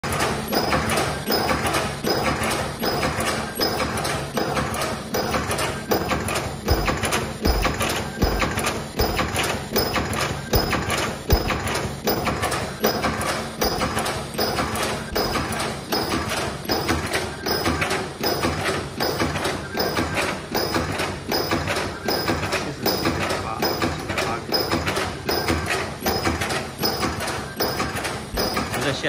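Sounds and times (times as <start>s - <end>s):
welding machine clacking: 0.0s - 29.0s.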